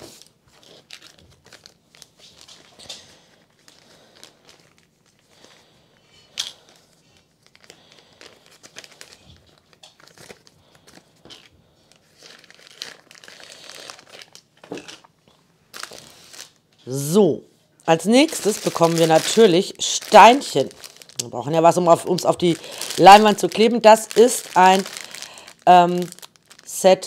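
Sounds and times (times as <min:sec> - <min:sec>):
plastic packaging crinkling: 0:00.0 - 0:16.8, 0:17.9 - 0:27.0.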